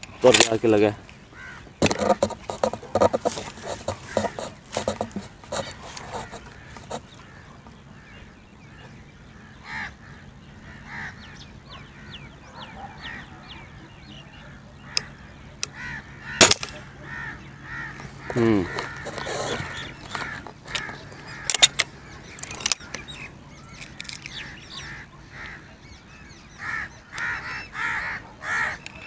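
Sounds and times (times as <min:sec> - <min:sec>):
birds calling: 0:00.0 - 0:29.0
air rifle shot: 0:16.4 - 0:16.8.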